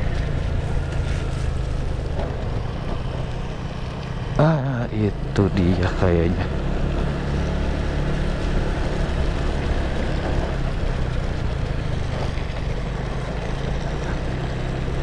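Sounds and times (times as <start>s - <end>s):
motorcycle engine running: 0.0s - 15.0s
wind and road noise: 0.0s - 15.0s.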